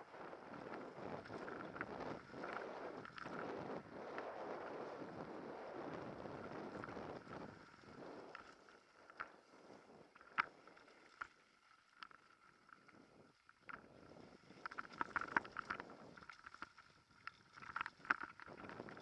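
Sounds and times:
wind noise: 0.0s - 10.7s, 17.6s - 19.0s
mountain bike rolling on dirt: 0.0s - 19.0s
bike clicks and rattles: 14.5s - 19.0s.

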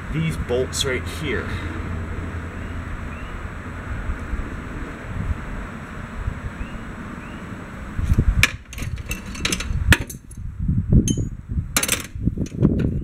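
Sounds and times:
wind on microphone: 0.0s - 13.0s
metal clanking of tools: 8.7s - 10.4s.

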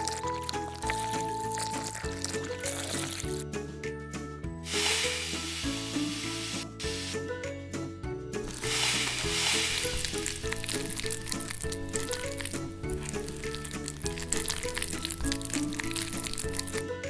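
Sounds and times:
background music: 0.0s - 17.0s
glitter shaken dry hissing rustle: 4.6s - 7.2s, 8.5s - 11.5s.

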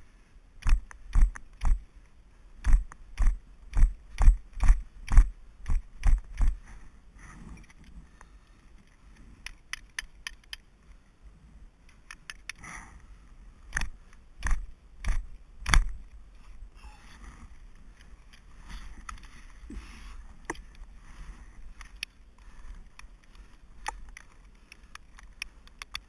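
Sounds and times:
soft rustling of climbing gear: 0.0s - 26.0s
climbing gear clicking on ice: 2.6s - 6.8s, 21.6s - 26.0s.

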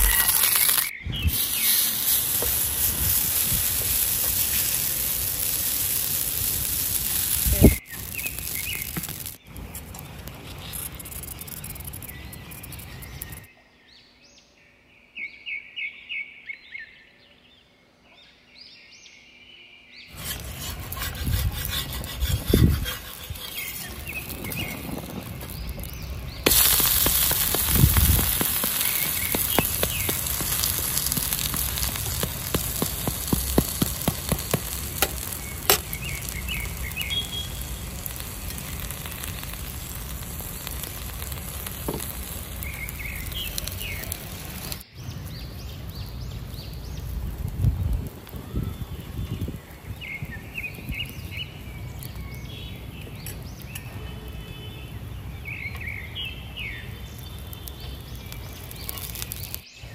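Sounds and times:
batter sizzling on a hot pan: 0.0s - 13.5s, 20.1s - 53.7s, 56.5s - 59.9s
birds chirping: 0.0s - 47.5s, 48.1s - 59.9s
metal spatula scraping: 20.1s - 25.8s, 26.5s - 36.7s.

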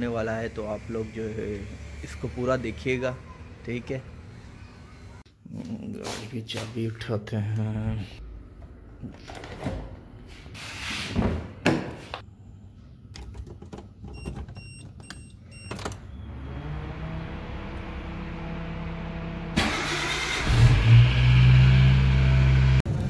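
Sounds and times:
car engine humming: 16.2s - 23.0s.

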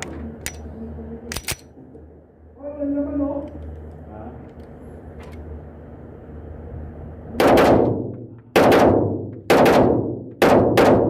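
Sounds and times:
pistol shots: 7.4s - 11.0s.

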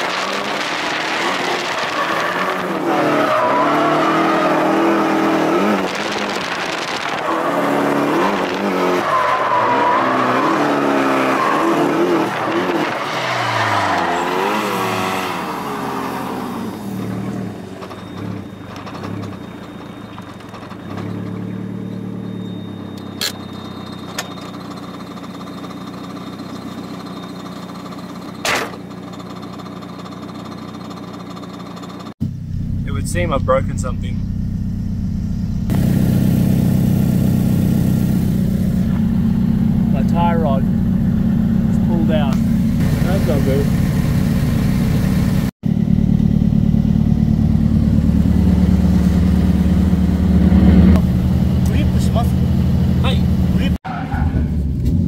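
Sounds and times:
car engine revving: 0.0s - 18.4s, 32.3s - 55.0s.

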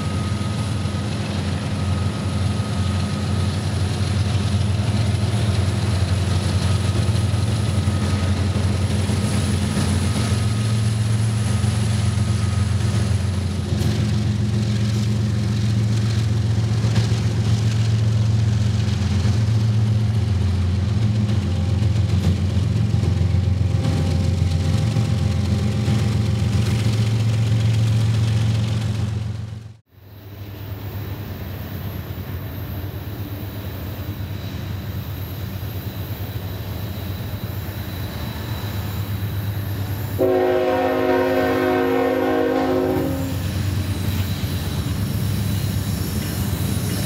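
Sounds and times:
diesel locomotive engines droning: 0.0s - 47.0s
faint high whine: 30.0s - 40.2s.

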